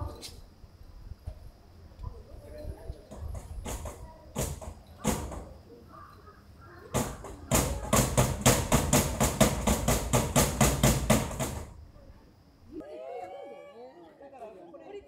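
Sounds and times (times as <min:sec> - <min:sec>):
fast sharp knocks: 0:03.1 - 0:05.6, 0:06.9 - 0:11.8.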